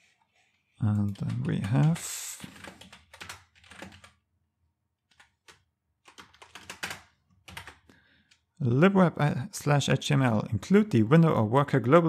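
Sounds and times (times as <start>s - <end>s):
keyboard typing: 0.8s - 4.2s, 5.1s - 8.4s.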